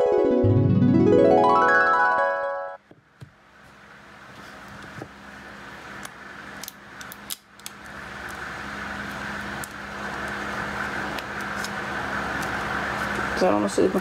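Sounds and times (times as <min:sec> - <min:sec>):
fan noise with low hum: 0:02.8 - 0:14.0.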